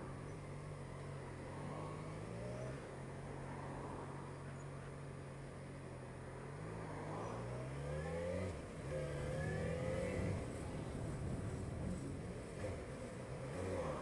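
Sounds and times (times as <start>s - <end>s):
motorcycle engine revving: 7.6s - 14.0s.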